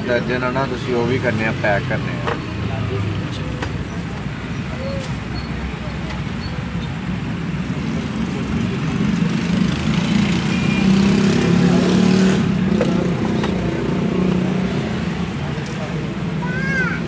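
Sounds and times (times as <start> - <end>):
street noise: 0.0 - 17.0
vehicle engine hum: 0.0 - 17.0.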